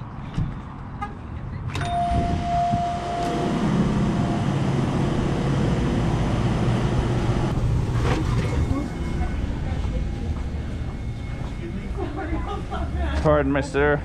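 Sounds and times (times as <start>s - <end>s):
electronic entry chime: 1.8s - 4.6s.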